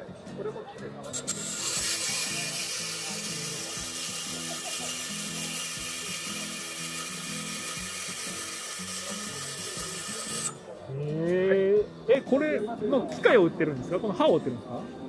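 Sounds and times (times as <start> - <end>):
band saw grinding steel: 1.1 - 10.6.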